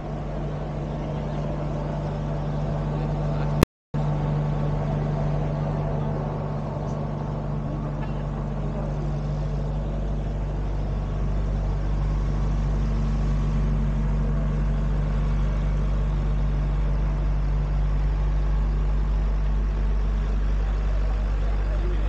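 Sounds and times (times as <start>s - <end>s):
low engine hum: 0.0s - 22.0s.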